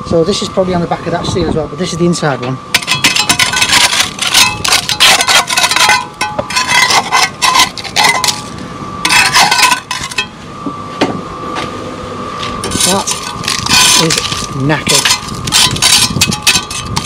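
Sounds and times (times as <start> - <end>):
metal tool scraping rusted steel: 2.8 - 10.3, 12.6 - 17.0
rust flakes cracking away: 12.7 - 16.9.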